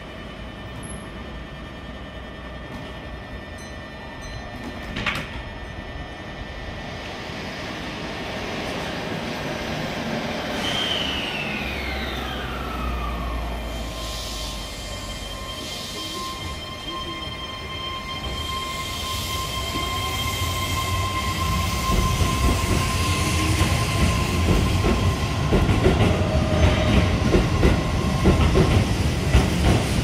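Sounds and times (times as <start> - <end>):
train clunk: 2.6 - 5.8.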